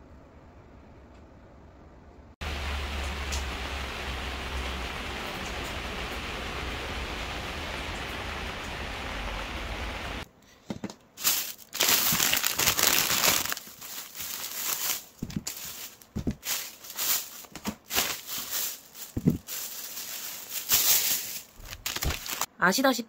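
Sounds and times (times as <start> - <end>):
plastic packaging crinkling: 11.2 - 22.5.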